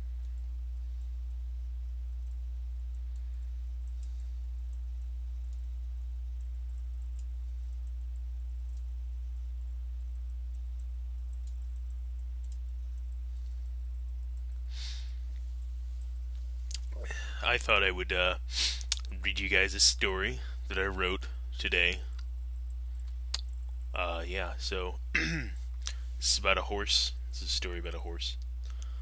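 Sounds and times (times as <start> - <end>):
low electrical hum: 0.0 - 29.0
faint clicks: 2.2 - 14.7, 18.7 - 19.6, 27.9 - 29.0.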